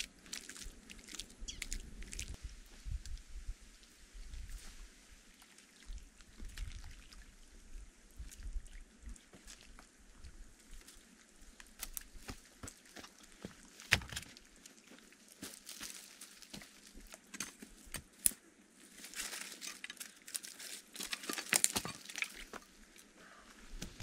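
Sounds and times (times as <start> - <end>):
footsteps crunching on twigs: 11.6 - 22.7.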